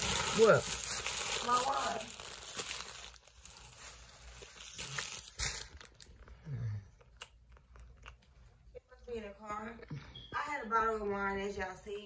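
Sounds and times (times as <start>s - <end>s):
tissue paper rustling: 0.0s - 6.1s.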